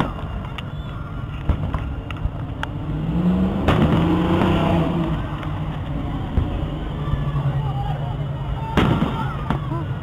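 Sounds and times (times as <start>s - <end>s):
fireworks bangs and pops: 0.0s - 2.7s, 3.6s - 6.7s, 8.7s - 9.8s.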